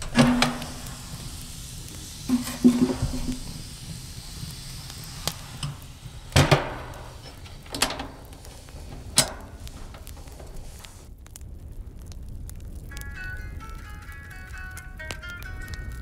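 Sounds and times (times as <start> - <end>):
sharp knocks: 0.0 - 1.0.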